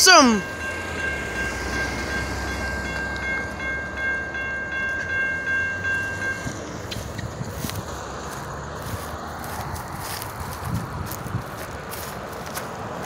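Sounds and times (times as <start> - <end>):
railroad crossing bell ringing: 0.0 - 7.8.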